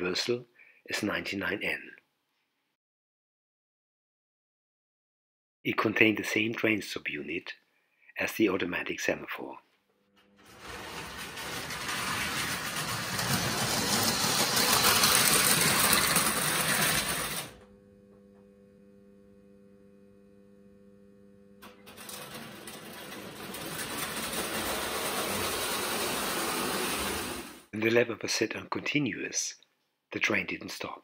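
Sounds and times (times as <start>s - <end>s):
toy train motor whirring: 10.5s - 17.6s, 22.8s - 27.7s
toy train wheels clattering: 10.7s - 17.5s, 22.2s - 27.6s.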